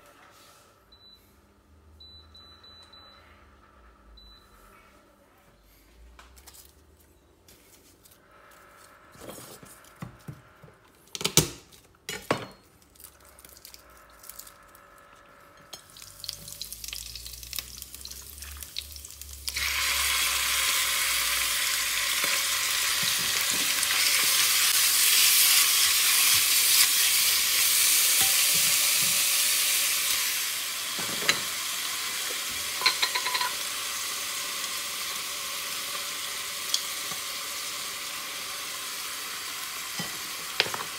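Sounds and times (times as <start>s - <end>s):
chicken sizzling in a wok: 15.9s - 40.9s.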